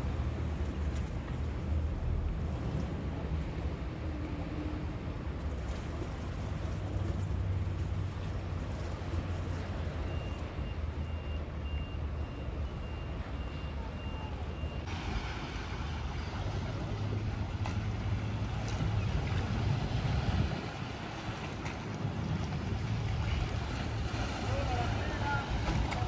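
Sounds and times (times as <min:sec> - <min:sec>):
low engine rumble: 0:00.0 - 0:26.0
electronic warning beeps: 0:10.0 - 0:14.9.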